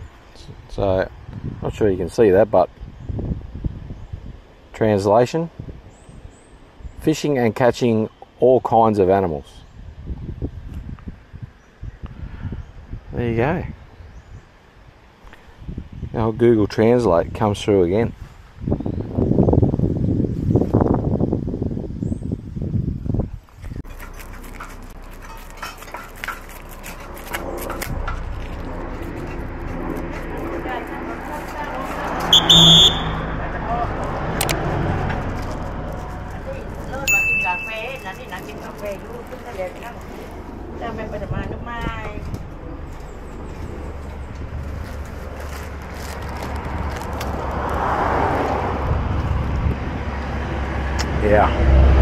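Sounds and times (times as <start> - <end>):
steady low rumble: 23.0 - 47.8
cups and utensils clinking: 23.9 - 28.2
vehicle passing by: 26.5 - 52.0.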